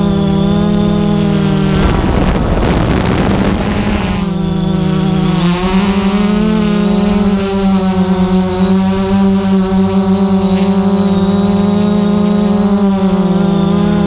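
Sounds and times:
drone propellers humming: 0:00.0 - 0:14.0
loud rush of noise: 0:01.2 - 0:07.4.

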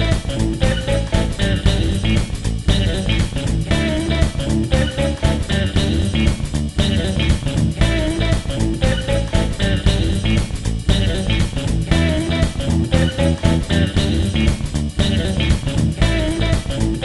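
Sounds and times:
bass guitar: 0:00.0 - 0:17.0
guitar: 0:00.0 - 0:17.0
steady drum beat: 0:00.0 - 0:17.0.

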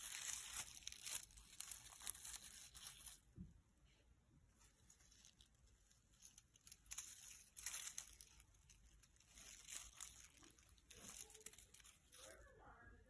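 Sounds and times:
burlap and paper rustling: 0:00.0 - 0:03.4, 0:04.6 - 0:12.5.

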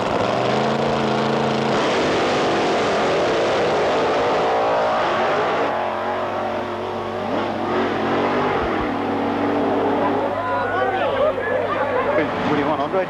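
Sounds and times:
racing car engine at full throttle: 0:00.0 - 0:13.0.

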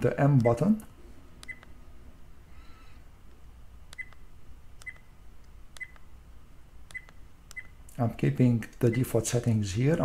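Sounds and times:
button clicks: 0:03.9 - 0:04.2, 0:04.8 - 0:05.1, 0:05.8 - 0:06.1, 0:06.9 - 0:07.7.

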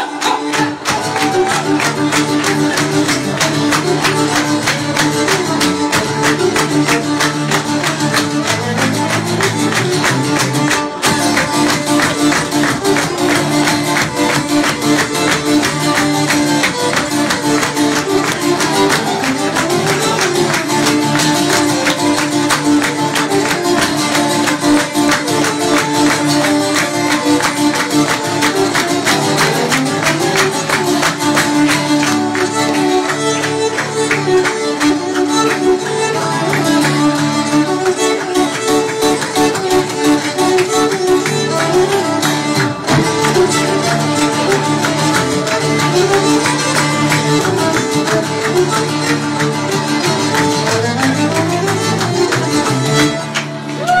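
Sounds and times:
strummed acoustic guitar: 0:00.0 - 0:53.8
violin melody: 0:00.0 - 0:54.0.

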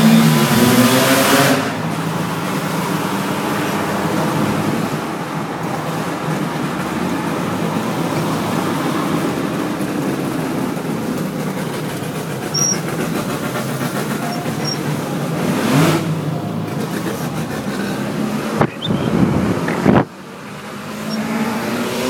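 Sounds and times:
rotary engine droning: 0:00.0 - 0:22.0
tyre noise on wet road: 0:00.0 - 0:22.0.

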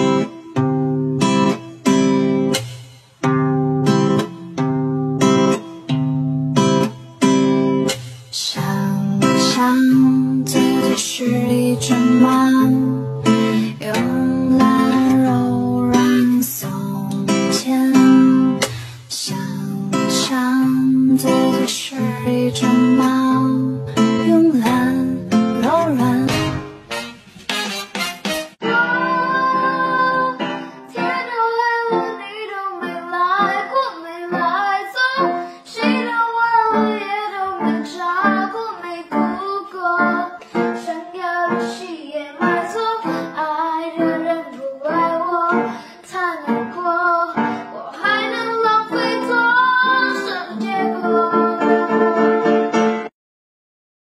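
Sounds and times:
plucked guitar: 0:00.0 - 0:53.1
person singing: 0:08.3 - 0:27.1, 0:28.6 - 0:52.7.

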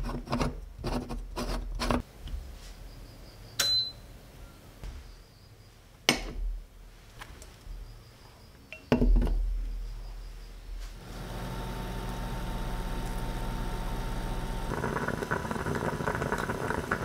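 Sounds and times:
cooktop electrical hum: 0:10.8 - 0:17.0.

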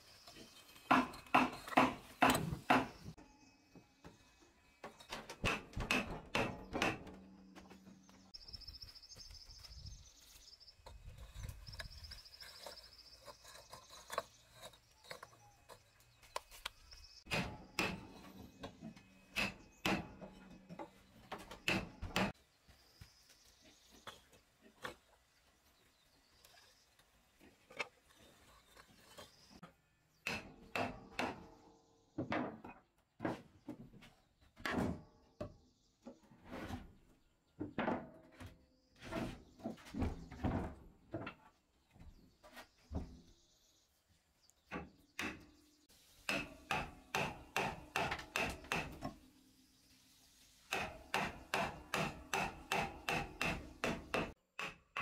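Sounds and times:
hammer striking chisel: 0:46.3 - 0:49.0, 0:50.7 - 0:55.0.

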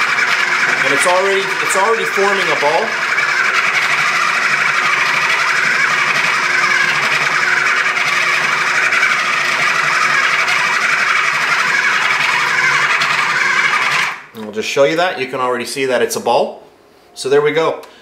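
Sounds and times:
food processor kneading dough: 0:00.0 - 0:14.3.

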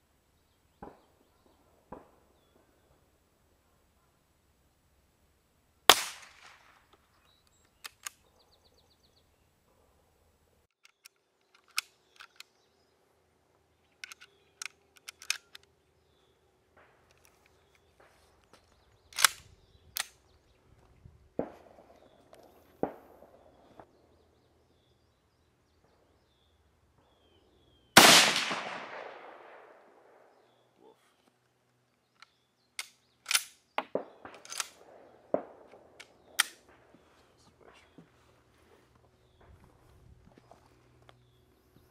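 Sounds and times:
rifle shots: 0:05.9 - 0:06.7, 0:28.0 - 0:30.3, 0:33.3 - 0:36.9
rifle bolt clacking: 0:10.8 - 0:12.5, 0:14.0 - 0:15.6, 0:19.2 - 0:19.4, 0:32.2 - 0:33.6, 0:34.3 - 0:34.8, 0:36.0 - 0:36.6
sharp mechanical clicks: 0:14.0 - 0:15.7, 0:19.1 - 0:19.4.

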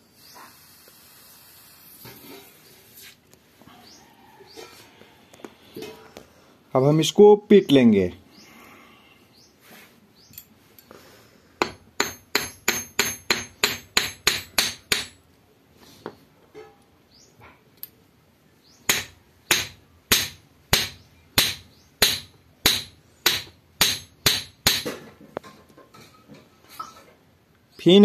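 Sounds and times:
hammer striking metal on anvil: 0:11.6 - 0:15.2, 0:18.9 - 0:25.0.

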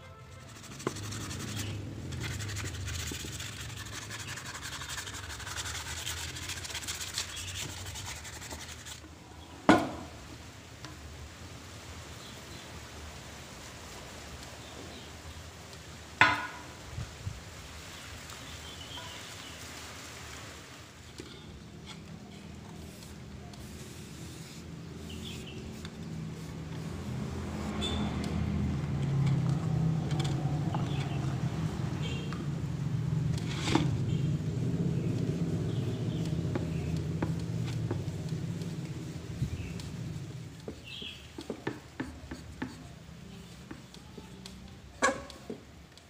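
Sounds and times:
gloved hands rubbing wood: 0:00.2 - 0:09.1, 0:21.8 - 0:29.5, 0:35.2 - 0:44.0.

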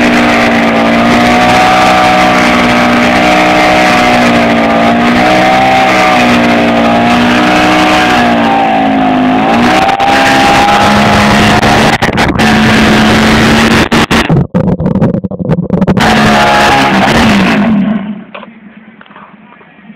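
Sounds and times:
motorcycle engine revving: 0:00.0 - 0:18.6.

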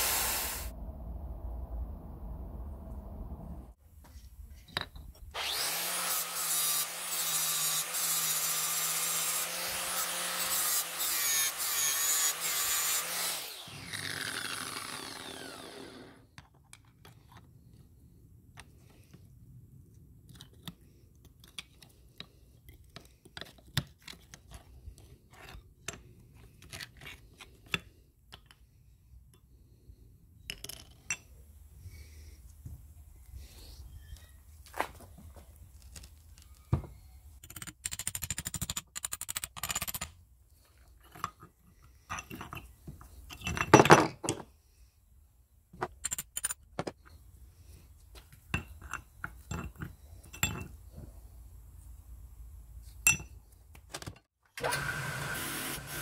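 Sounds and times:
power tool grinding: 0:05.4 - 0:16.2
motor winding down whine: 0:13.5 - 0:16.2
metal clicks and scrapes: 0:37.4 - 0:40.2.

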